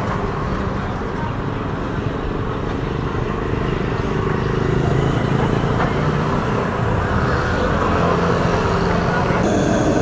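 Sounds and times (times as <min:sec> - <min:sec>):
road noise: 0:00.0 - 0:10.0
vehicle engine running: 0:09.4 - 0:10.0.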